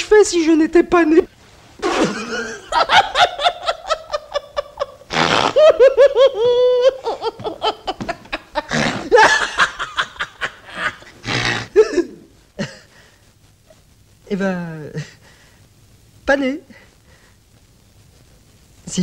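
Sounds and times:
man laughing hard: 1.8 - 11.1.

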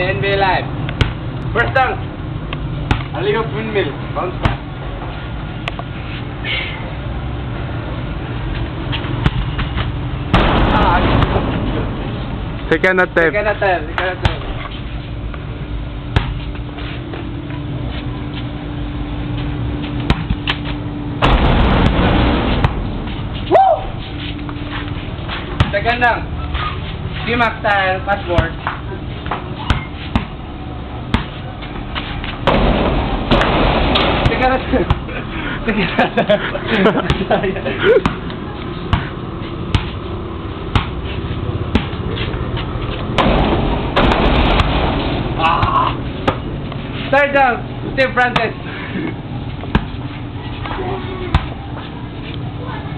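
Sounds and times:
steady low hum: 0.0 - 52.9
loud rush of noise: 10.0 - 13.4
basketball bouncing: 16.1 - 16.4, 25.5 - 25.8, 28.3 - 30.4, 31.1 - 31.4, 32.4 - 35.1, 37.0 - 37.3, 38.0 - 38.3, 38.9 - 40.0, 40.7 - 41.0, 41.7 - 42.0, 43.1 - 46.5, 49.6 - 50.0.

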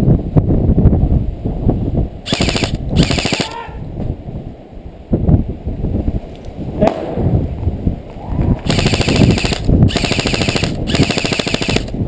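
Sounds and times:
airsoft rifle full-auto bursts: 2.3 - 3.6, 8.7 - 12.0.

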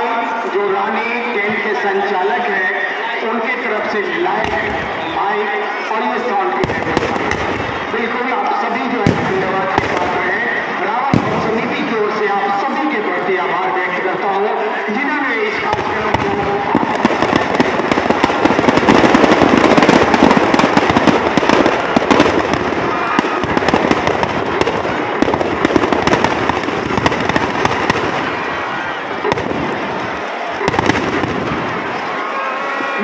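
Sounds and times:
firecrackers cracking rapidly: 6.5 - 8.2, 8.8 - 12.2, 15.5 - 32.6.

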